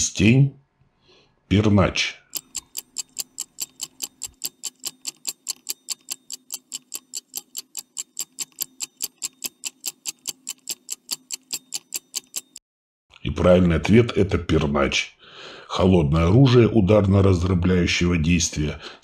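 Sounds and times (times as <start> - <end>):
stopwatch ticking: 2.3 - 12.6.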